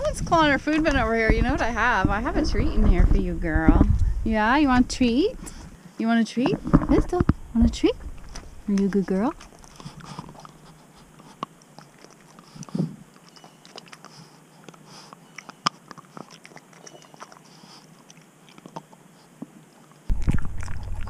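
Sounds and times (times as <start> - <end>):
loud low noise: 0.0 - 5.8, 6.9 - 9.4, 20.1 - 21.0
dog gnawing rubber chew: 8.0 - 21.0
teeth clicking: 8.2 - 19.0.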